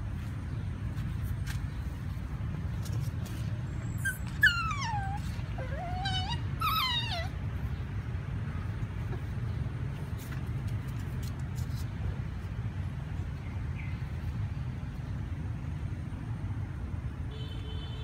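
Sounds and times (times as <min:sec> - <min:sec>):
puppy whining: 0:03.9 - 0:07.8.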